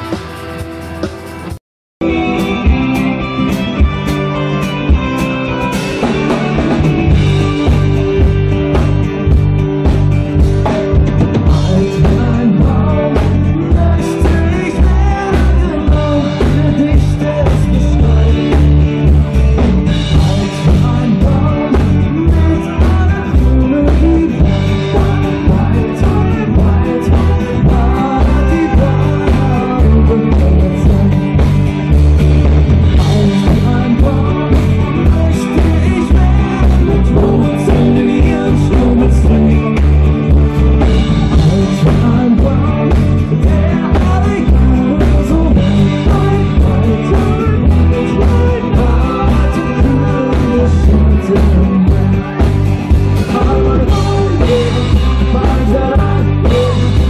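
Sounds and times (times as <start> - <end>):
live rock band playing: 0.0 - 57.0
steady drum beat: 0.0 - 57.0
lead singer singing: 4.4 - 57.0.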